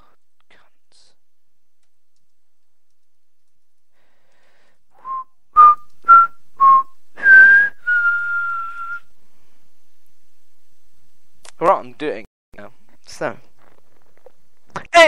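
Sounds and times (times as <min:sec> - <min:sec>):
person whistling a tune: 0:05.0 - 0:09.1.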